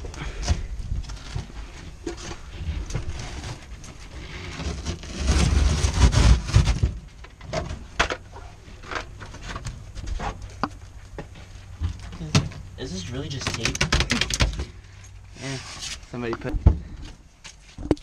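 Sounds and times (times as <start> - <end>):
carpet being torn and scraped: 2.2 - 7.0.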